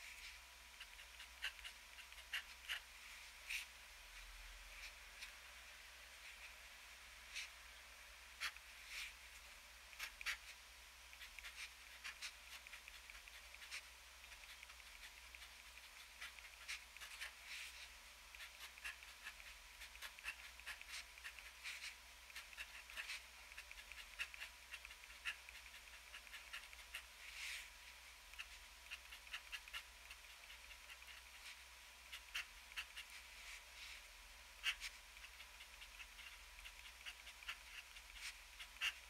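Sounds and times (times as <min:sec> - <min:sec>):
fountain pen scratching on paper: 0:00.2 - 0:02.9, 0:10.0 - 0:27.7, 0:28.4 - 0:33.6, 0:34.6 - 0:39.0.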